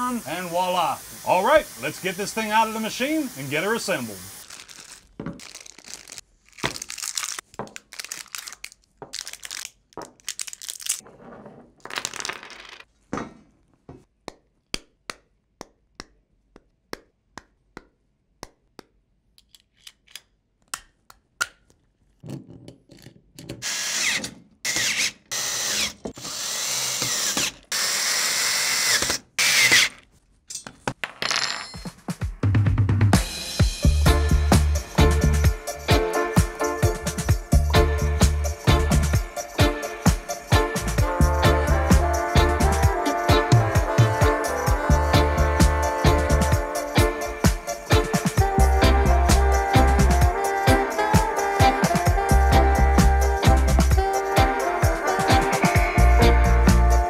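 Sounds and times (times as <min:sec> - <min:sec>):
power drill driving fasteners: 0:23.6 - 0:30.1.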